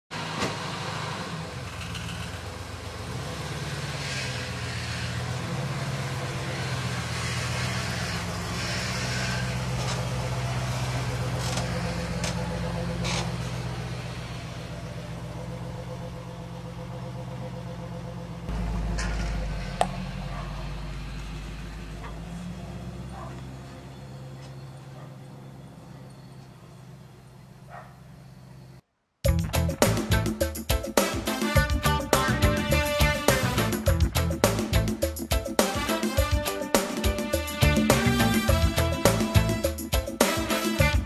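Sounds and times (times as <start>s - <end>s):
vehicle engine idling: 0.2s - 30.7s.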